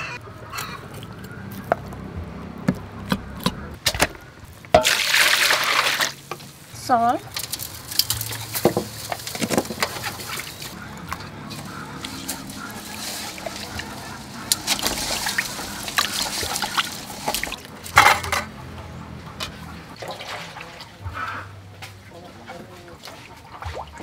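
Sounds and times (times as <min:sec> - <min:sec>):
wet splashes: 0:04.8 - 0:06.3, 0:07.6 - 0:17.9, 0:20.0 - 0:24.0
water sloshing in metal bowl: 0:07.3 - 0:18.5, 0:20.0 - 0:24.0
hands scrubbing fish: 0:07.4 - 0:18.0.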